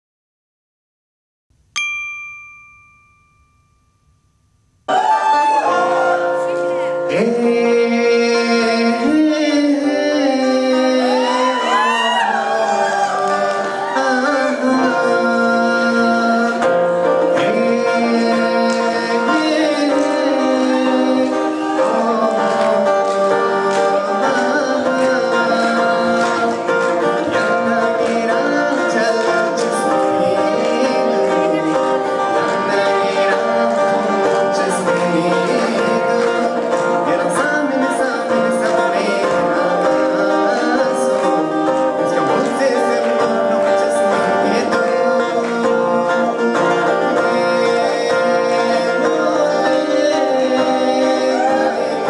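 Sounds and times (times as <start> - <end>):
bell-like chime: 1.7 - 4.8
acoustic guitar: 4.0 - 52.0
man singing ornamented notes: 5.7 - 52.0.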